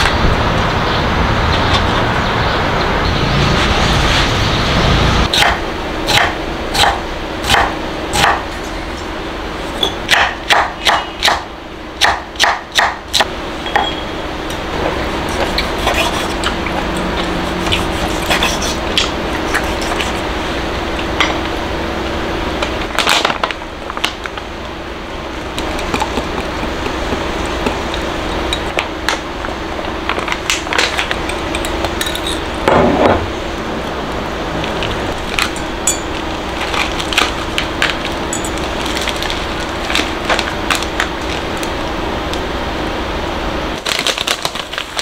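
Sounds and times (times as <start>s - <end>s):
steady low hum: 0.0s - 45.0s
knife cutting on wooden board: 15.3s - 16.6s.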